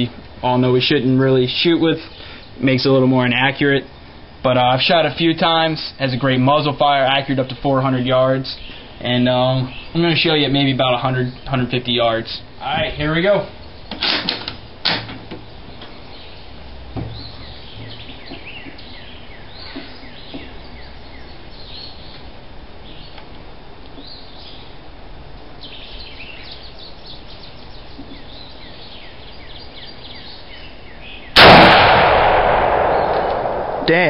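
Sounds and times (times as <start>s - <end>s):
small birds chirping: 0.8s - 5.4s, 6.0s - 14.0s, 14.6s - 31.4s, 32.4s - 34.0s
rifle shot with echo: 31.4s - 34.0s.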